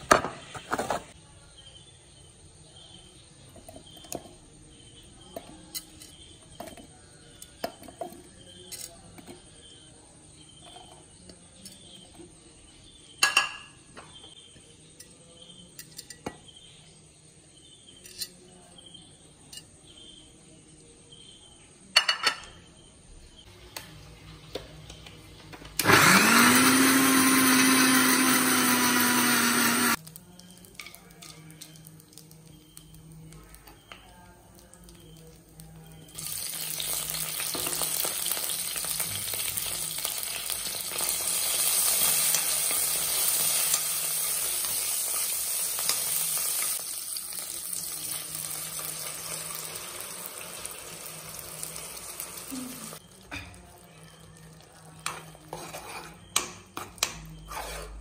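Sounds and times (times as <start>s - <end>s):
mixer grinder motor running: 25.8s - 30.0s.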